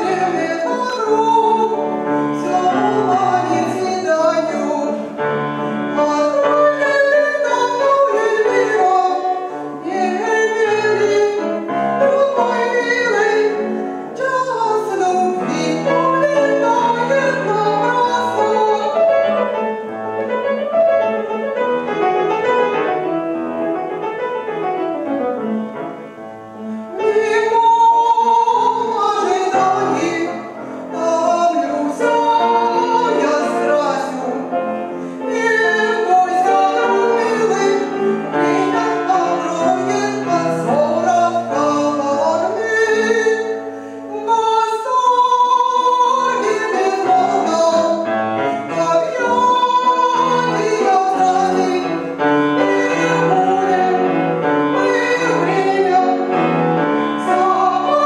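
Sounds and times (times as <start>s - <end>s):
woman singing operatically: 0.0s - 5.0s, 5.9s - 19.3s, 26.9s - 34.4s, 35.3s - 43.6s, 44.2s - 56.3s
grand piano: 0.0s - 58.0s.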